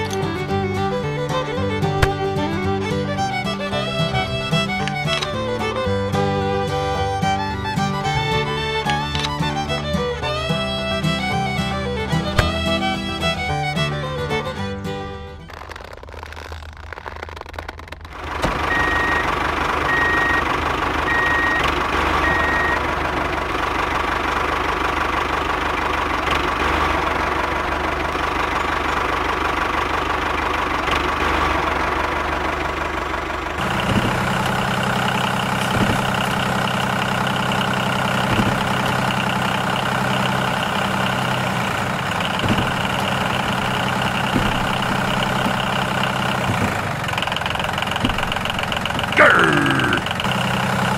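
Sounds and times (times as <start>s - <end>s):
tractor engine running: 0.0s - 50.9s
light knocks: 12.2s - 13.4s, 38.3s - 38.9s, 42.4s - 45.8s.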